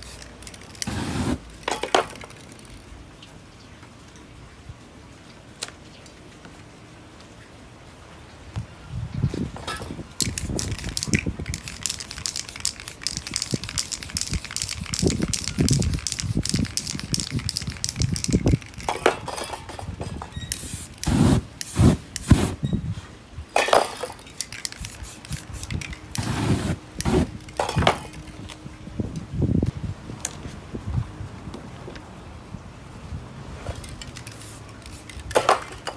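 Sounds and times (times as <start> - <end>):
spray paint can hissing: 0.0 - 1.4, 10.2 - 18.9, 20.4 - 22.6, 24.4 - 27.4, 34.1 - 35.8
loud hissing burst of flame: 0.8 - 1.4, 20.6 - 22.6, 26.2 - 27.3.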